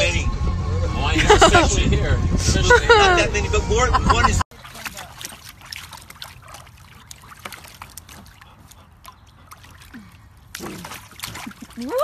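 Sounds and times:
paws splashing in water: 4.5s - 12.0s.

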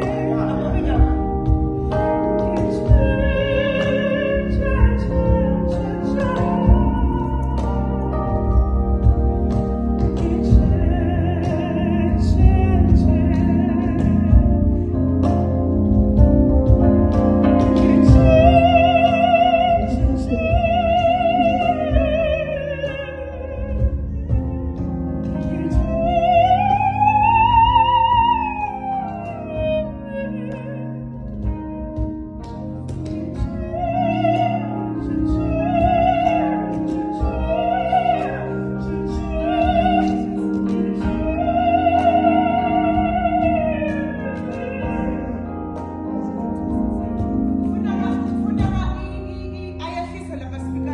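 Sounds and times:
instrumental accompaniment: 0.0s - 50.9s
woman singing operatically: 2.5s - 7.8s, 17.8s - 24.4s, 25.4s - 31.1s, 33.2s - 45.5s.

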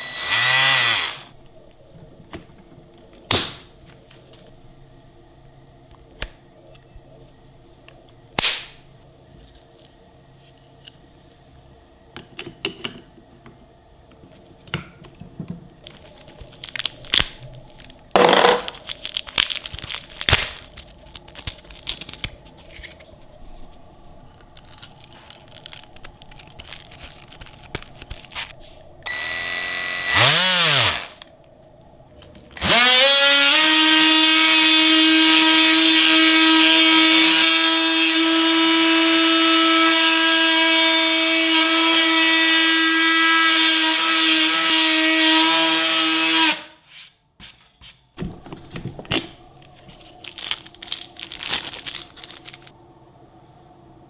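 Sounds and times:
oscillating sander motor whining: 0.0s - 1.3s, 29.0s - 31.2s.

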